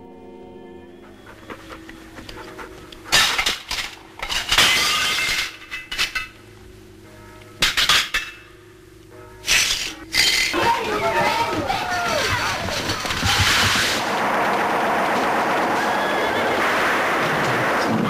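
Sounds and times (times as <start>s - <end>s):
plates smashing on tiled floor: 3.1s - 6.4s, 7.6s - 8.5s, 9.4s - 16.0s
shards clattering: 3.1s - 6.4s, 7.6s - 8.5s, 9.4s - 14.0s.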